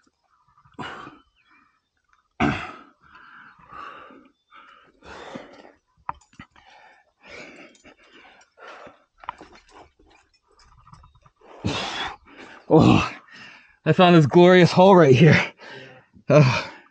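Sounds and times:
person breathing hard: 2.9 - 5.8, 6.4 - 9.6, 11.6 - 13.8, 15.5 - 16.9.

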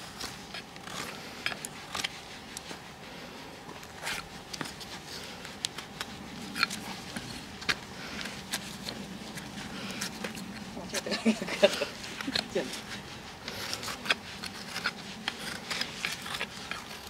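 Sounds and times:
hoof knife paring: 0.0 - 17.0
hoof nippers snipping: 5.5 - 10.7, 11.8 - 17.0.

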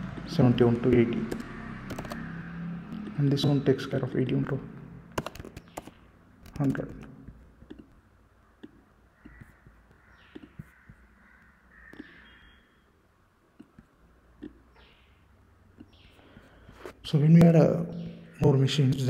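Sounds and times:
computer mouse clicks: 1.3 - 2.2, 8.6 - 11.0, 13.6 - 14.6
faint harsh animal calls: 8.7 - 13.0.

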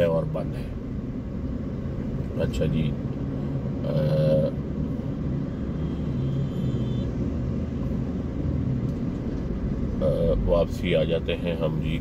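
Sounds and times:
car engine hum: 0.0 - 12.0
road rumble: 0.0 - 12.0.

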